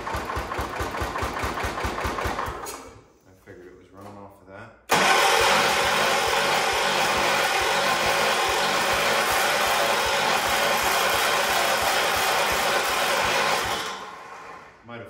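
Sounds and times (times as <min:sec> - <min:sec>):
electric starter cranking engine: 0:04.9 - 0:14.8.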